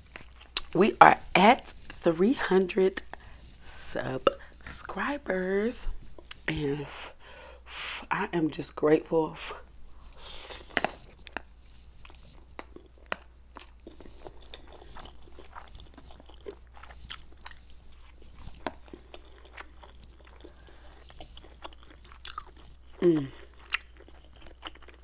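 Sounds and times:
noodle slurp: 0:00.0 - 0:04.9, 0:09.9 - 0:23.9
wet chewing and mouth clicks: 0:00.0 - 0:07.3, 0:09.6 - 0:25.0.

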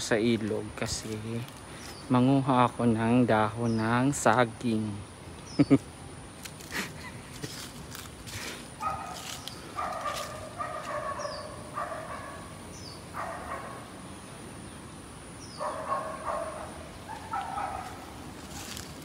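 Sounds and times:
bird calls: 0:00.0 - 0:02.4, 0:03.3 - 0:04.4, 0:05.3 - 0:07.6, 0:08.4 - 0:19.0.

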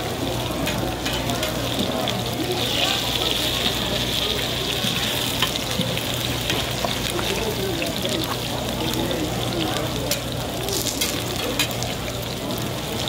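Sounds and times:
pancakes sizzling in oil: 0:00.0 - 0:13.0.

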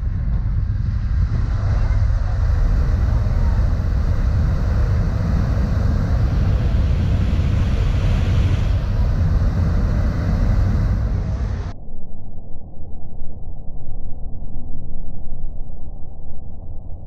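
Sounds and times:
foaming water hiss: 0:00.0 - 0:11.7
ship propellers churning water: 0:00.0 - 0:11.7.

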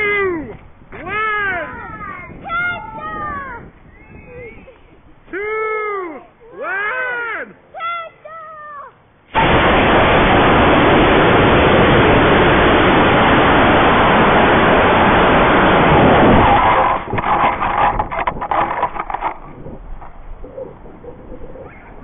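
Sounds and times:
wind buffeting: 0:00.0 - 0:05.3, 0:09.4 - 0:22.0
rocket motor rushing noise: 0:09.3 - 0:20.1.

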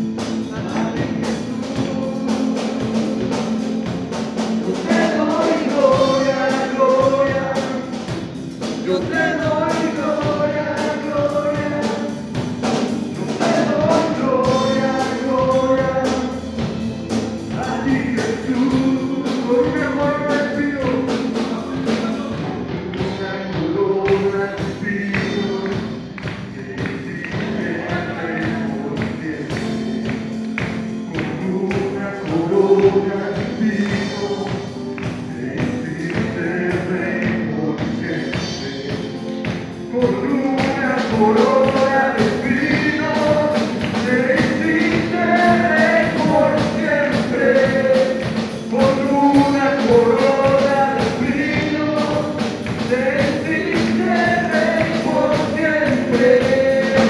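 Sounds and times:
drum kit beat: 0:00.0 - 0:57.0
worship singing: 0:00.0 - 0:57.0.

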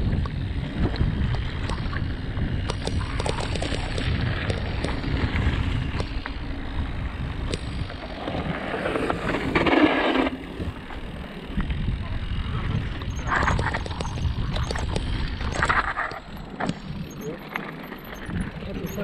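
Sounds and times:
wind on microphone: 0:00.0 - 0:17.4
bike rattling clicks: 0:00.0 - 0:19.0
bike tyres rumbling over trail: 0:00.0 - 0:19.0
gritty rush: 0:00.0 - 0:19.0.

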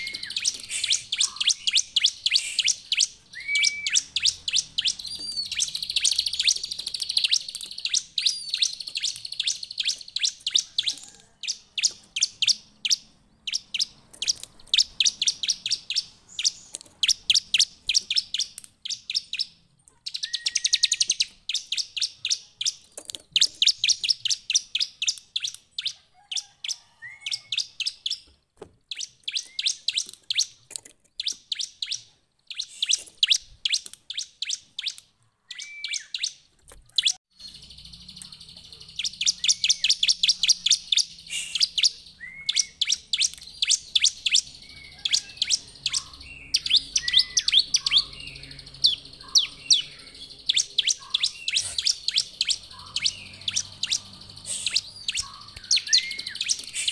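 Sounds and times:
bird rising whistle: 0:00.0 - 0:06.4, 0:20.2 - 0:21.3, 0:35.5 - 0:36.2, 0:39.2 - 0:53.2
bird chirping song: 0:00.0 - 0:56.9.

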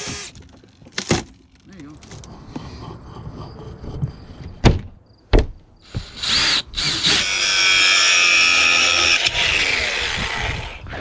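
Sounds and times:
power drill whining: 0:00.0 - 0:00.4, 0:05.8 - 0:11.0.

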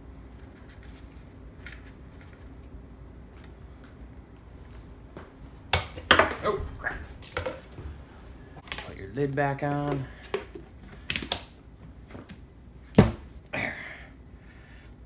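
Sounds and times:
plastic containers clattering on countertop: 0:07.2 - 0:07.7.

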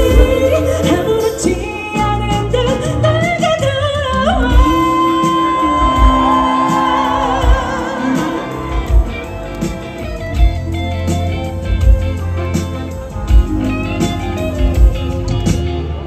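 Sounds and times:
female vocal group singing: 0:00.0 - 0:03.2
pop band playing: 0:00.0 - 0:16.0.

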